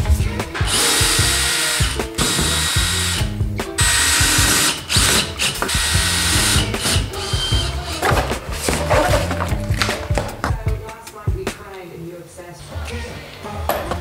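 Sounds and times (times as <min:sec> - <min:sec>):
background music: 0:00.0 - 0:14.0
cordless drill into wood: 0:00.7 - 0:08.1.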